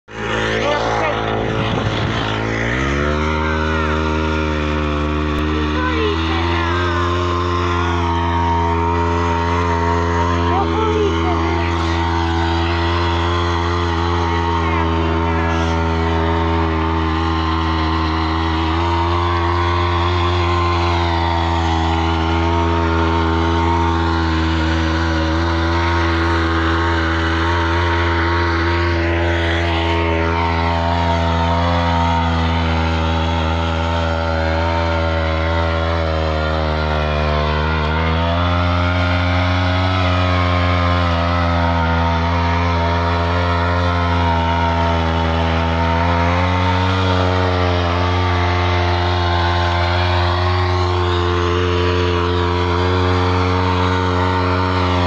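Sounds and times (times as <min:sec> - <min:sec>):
tiller engine running under load: 0:00.0 - 0:55.0
tines churning stony soil: 0:00.1 - 0:55.0.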